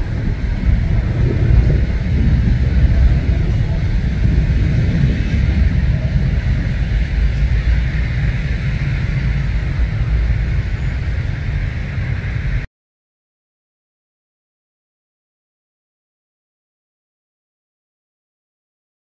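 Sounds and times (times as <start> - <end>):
jet engine rumble overhead: 0.0 - 12.7.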